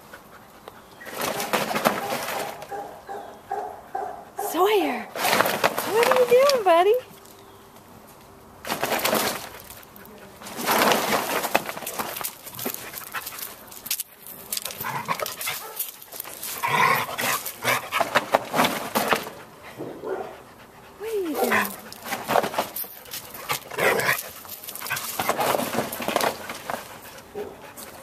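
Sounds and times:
dogs scuffling and rustling: 0.0s - 28.0s
dog vocalisations: 20.1s - 22.0s.

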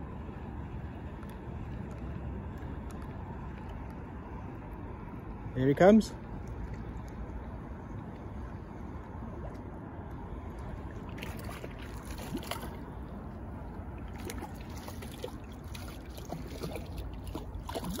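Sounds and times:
fish splashing at water surface: 9.3s - 13.2s, 13.8s - 18.0s.

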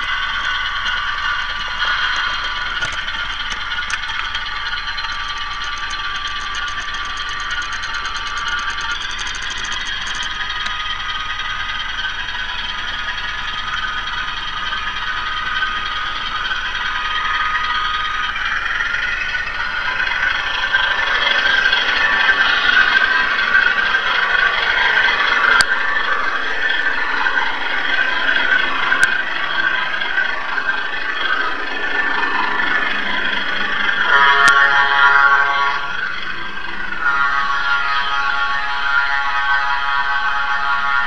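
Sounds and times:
model train diesel engine sound: 0.0s - 41.0s
model wheels clattering on track: 0.8s - 34.6s
sharp clicks: 1.9s - 10.8s.

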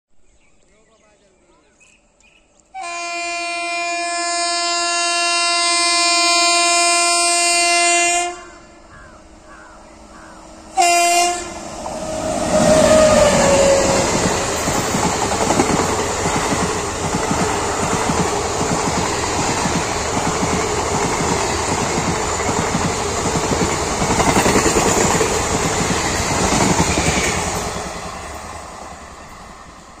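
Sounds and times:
locomotive horn blasts: 2.8s - 8.8s, 10.8s - 11.7s
train wheels clattering over joints: 14.1s - 28.4s.

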